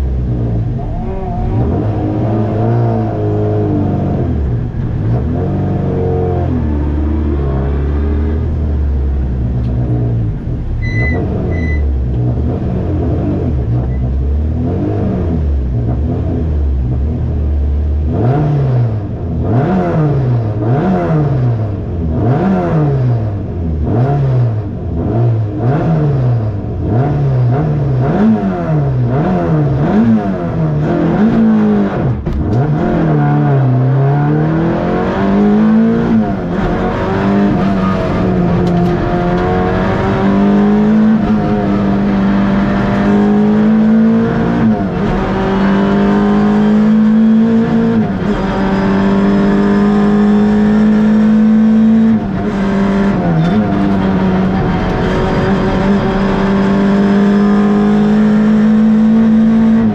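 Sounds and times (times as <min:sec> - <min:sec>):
race car engine revving: 0:00.0 - 0:59.9
short high beeps: 0:10.8 - 0:11.9.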